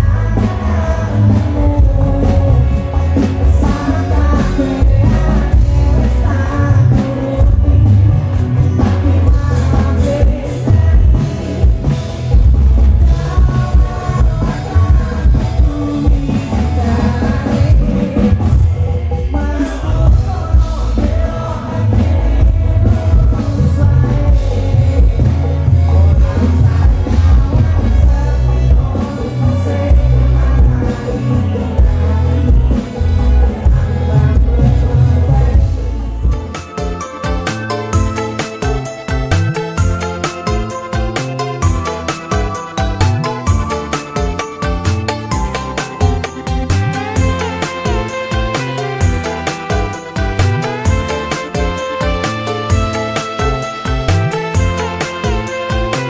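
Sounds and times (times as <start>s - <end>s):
guitars: 0.0s - 56.0s
heavy bass: 0.0s - 56.0s
live band music: 0.0s - 56.0s
male singer: 0.0s - 56.0s.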